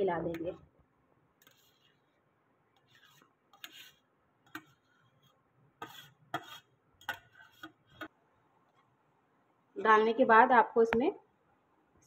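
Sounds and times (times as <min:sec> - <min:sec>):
spoon scraping steel bowl: 0:01.4 - 0:02.2, 0:02.8 - 0:08.1.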